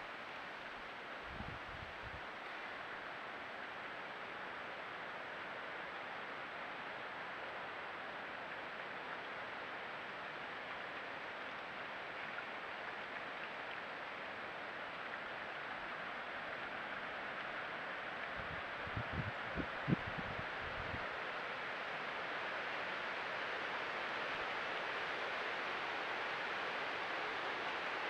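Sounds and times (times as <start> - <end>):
wind rustling through foliage: 0.0 - 28.0
wind buffets on microphone: 1.2 - 2.2, 18.4 - 21.0.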